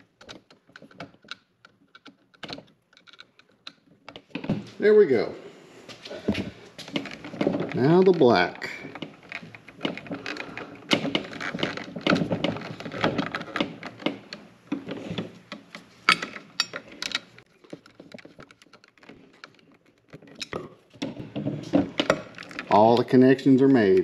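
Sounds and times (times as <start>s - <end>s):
clicks taps and scrapes: 6.2s - 23.1s.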